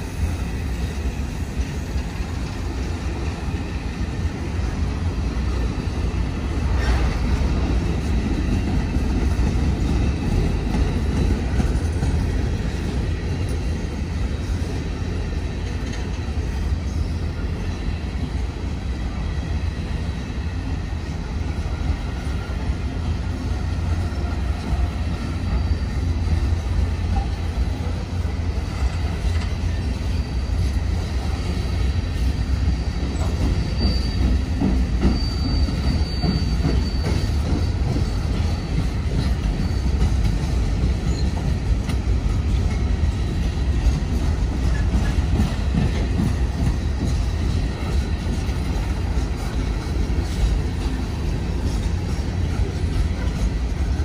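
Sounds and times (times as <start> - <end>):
train rumbling past: 0.0 - 54.0
faint wheel squeal: 24.0 - 27.6, 32.5 - 40.3, 41.0 - 41.4.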